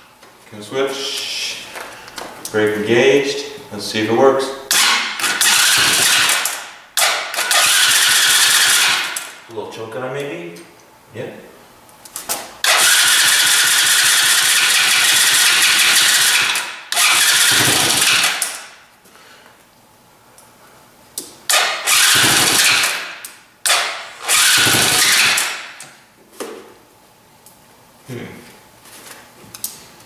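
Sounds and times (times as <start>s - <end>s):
electric starter cranking engine: 4.7s - 9.4s, 12.6s - 18.7s, 21.5s - 25.8s.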